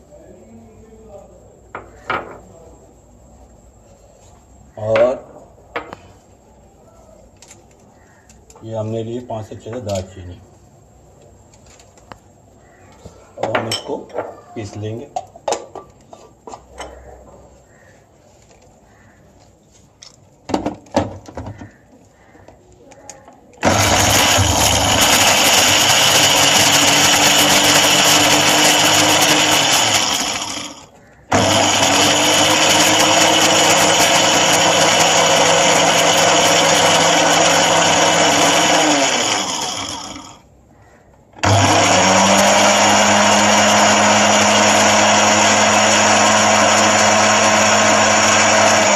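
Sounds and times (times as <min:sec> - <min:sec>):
spice grinder motor: 0:23.6 - 0:40.4, 0:41.4 - 0:48.9.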